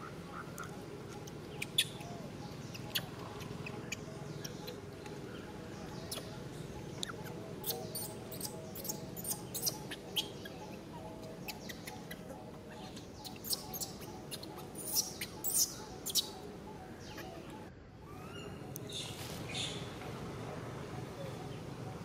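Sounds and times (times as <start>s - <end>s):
baby monkey squeaking: 8.0s - 10.3s, 13.2s - 16.3s.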